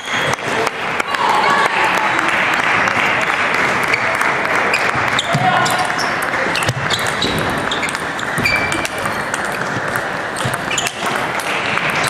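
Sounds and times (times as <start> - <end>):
busy hall background noise: 0.0 - 12.0
table tennis balls clicking: 3.9 - 12.0.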